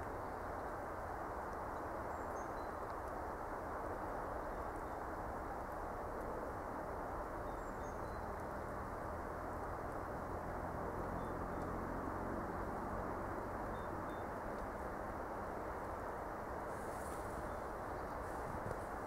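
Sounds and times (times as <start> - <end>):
low background noise: 0.0 - 19.0.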